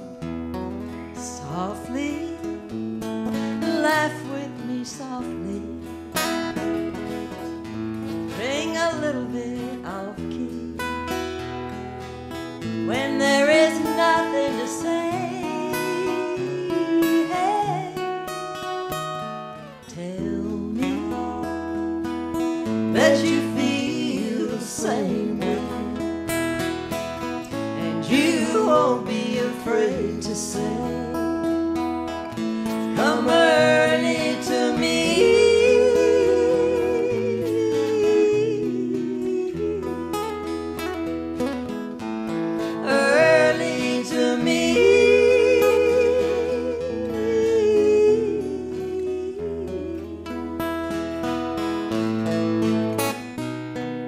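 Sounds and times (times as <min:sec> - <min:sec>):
acoustic guitars strummed: 0:00.0 - 0:54.0
woman singing: 0:00.8 - 0:11.7, 0:12.6 - 0:52.7.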